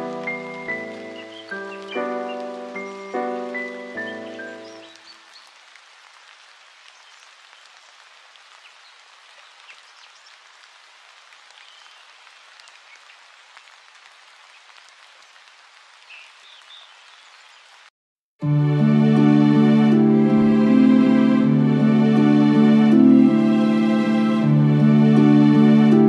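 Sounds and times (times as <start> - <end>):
music: 0.0 - 5.0, 18.4 - 26.0.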